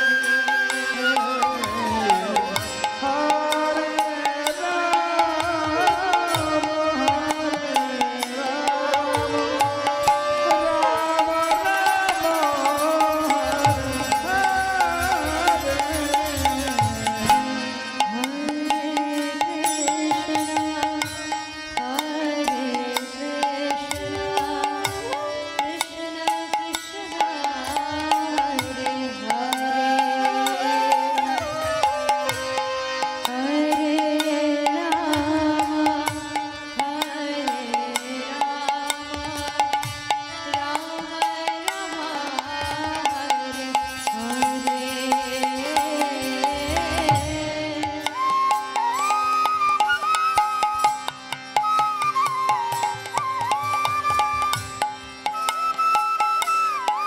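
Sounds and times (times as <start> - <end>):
bamboo flute melody: 0.0 - 2.7, 29.6 - 33.2, 48.1 - 57.0
harmonium chords: 0.0 - 57.0.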